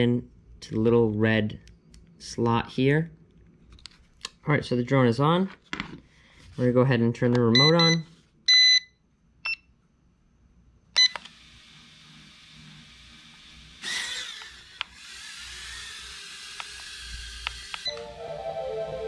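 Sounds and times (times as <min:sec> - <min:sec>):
remote control beeps: 0:07.5 - 0:09.6, 0:11.0 - 0:11.2, 0:17.8 - 0:18.1.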